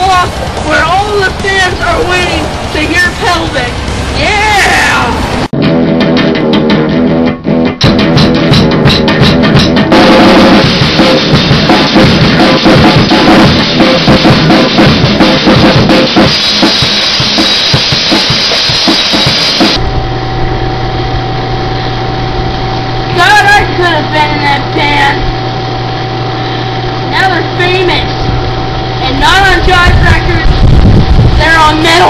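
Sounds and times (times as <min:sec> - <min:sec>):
drum kit fast beat: 0:00.0 - 0:19.8, 0:29.0 - 0:32.0
live rock band playing: 0:05.5 - 0:19.8
steady low hum: 0:19.6 - 0:32.0.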